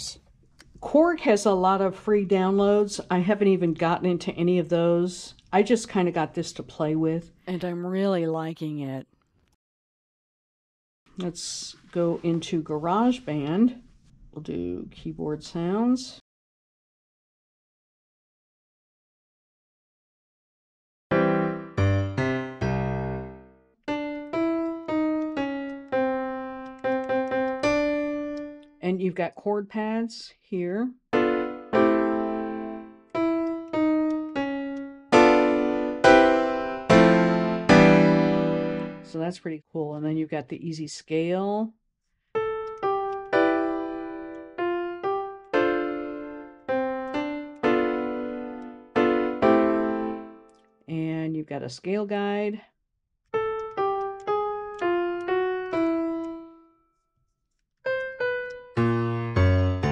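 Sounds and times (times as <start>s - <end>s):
piano chords and notes: 21.1s - 28.8s, 31.1s - 39.1s, 42.4s - 50.7s, 53.3s - 57.0s, 57.8s - 59.9s.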